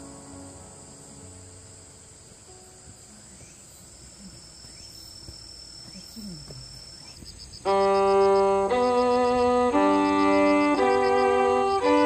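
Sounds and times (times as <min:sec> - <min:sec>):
insects trilling: 0:00.0 - 0:12.0
instrumental music with held notes: 0:07.6 - 0:12.0.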